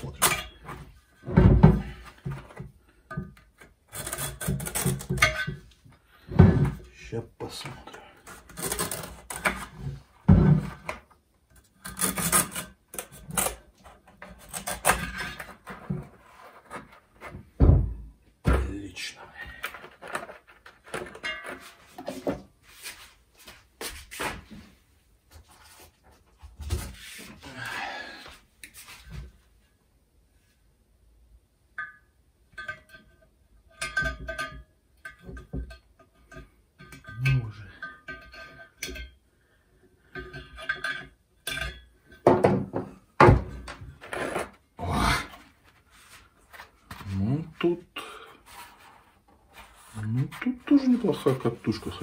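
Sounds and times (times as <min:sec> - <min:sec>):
metal tools clattering on workbench: 0:19.5 - 0:22.5.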